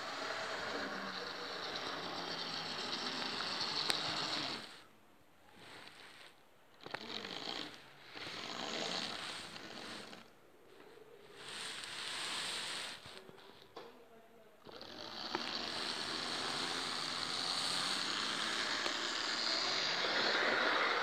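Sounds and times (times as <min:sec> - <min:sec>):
model train whirring on track: 0:00.0 - 0:04.8, 0:11.4 - 0:13.2, 0:14.7 - 0:21.0.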